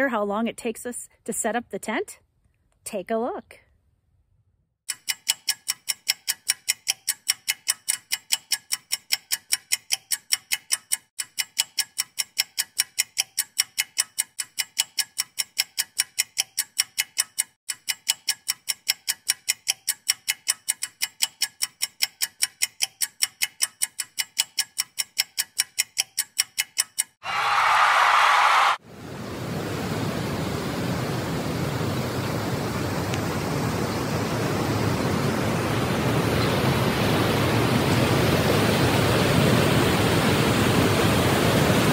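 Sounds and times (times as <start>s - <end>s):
clock ticking: 4.9s - 27.2s.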